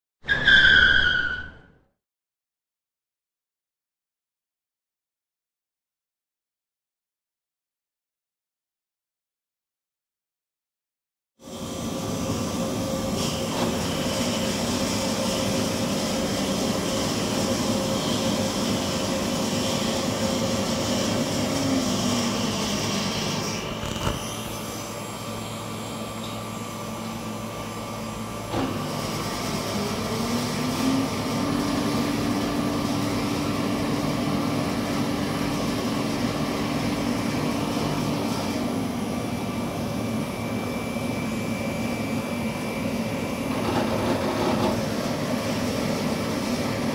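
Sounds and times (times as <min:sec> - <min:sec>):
oven fan motor whirring: 0:11.5 - 0:46.9.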